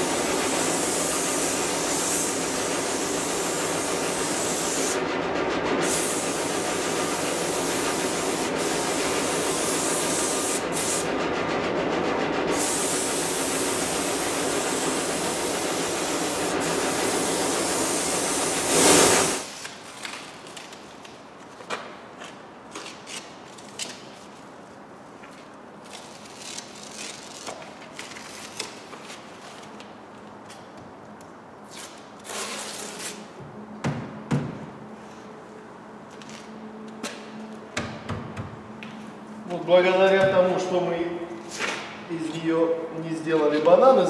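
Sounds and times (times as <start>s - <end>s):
spray gun hissing: 0.0s - 5.0s, 5.8s - 11.1s, 12.5s - 19.5s
ventilation hum: 0.0s - 44.0s
tape peeling and crackling: 19.5s - 24.3s, 25.4s - 30.7s, 31.6s - 33.3s.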